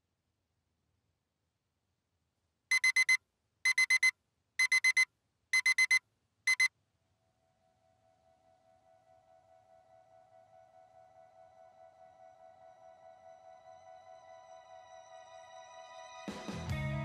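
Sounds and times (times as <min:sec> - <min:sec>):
electronic alarm beeping: 0:02.7 - 0:06.7.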